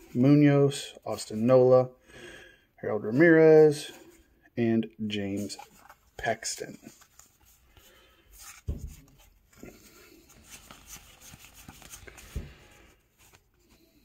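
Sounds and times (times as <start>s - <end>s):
cards rustling and sliding: 5.3s - 14.0s.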